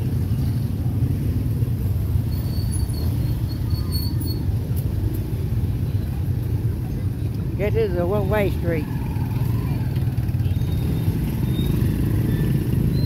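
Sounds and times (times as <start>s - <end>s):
road vehicle rumble: 0.0s - 13.0s
faint high squeaks: 2.3s - 4.5s.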